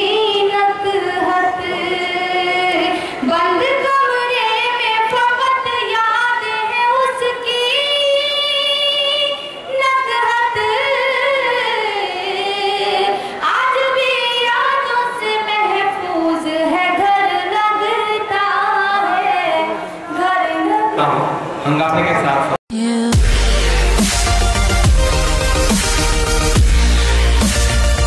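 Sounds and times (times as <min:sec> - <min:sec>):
woman singing unaccompanied: 0:00.0 - 0:21.0, 0:22.7 - 0:23.6.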